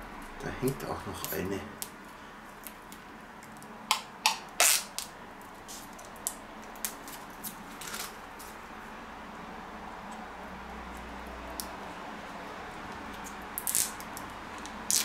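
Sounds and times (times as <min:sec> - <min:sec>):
plastic film peeling: 0:00.2 - 0:08.6, 0:13.0 - 0:15.0.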